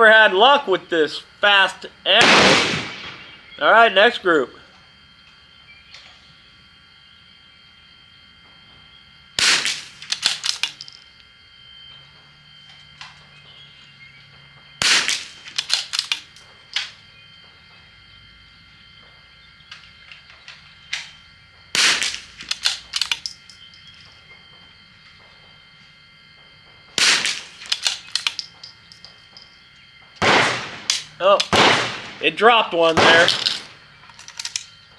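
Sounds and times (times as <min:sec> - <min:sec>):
rifle shots: 0:02.1 - 0:03.5, 0:09.4 - 0:10.7, 0:14.8 - 0:16.2, 0:21.7 - 0:23.1, 0:27.0 - 0:28.4, 0:30.2 - 0:33.8
rifle bolt metallic clicks: 0:10.0 - 0:10.9, 0:15.6 - 0:16.9, 0:22.4 - 0:23.5, 0:27.6 - 0:29.1, 0:33.0 - 0:34.7.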